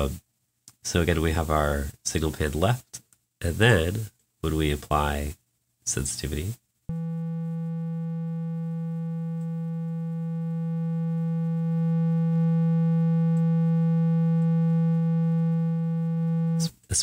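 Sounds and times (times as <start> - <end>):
steady low synthesizer note: 6.9 - 16.7.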